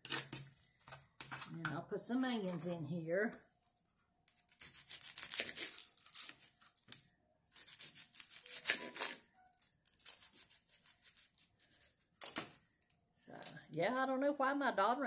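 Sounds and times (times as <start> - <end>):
onion skin crackling and tearing: 4.2 - 13.6.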